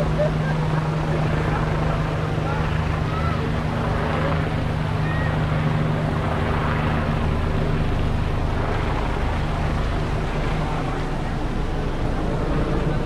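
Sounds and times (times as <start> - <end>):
city traffic rumble: 0.0 - 13.0
engine humming: 0.0 - 13.0.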